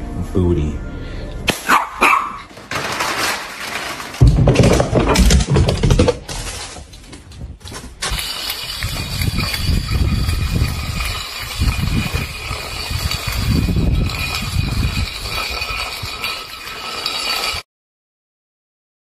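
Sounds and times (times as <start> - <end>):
metal bowl scraping on concrete: 7.6 - 17.6
bowl ringing high tone: 8.2 - 17.6.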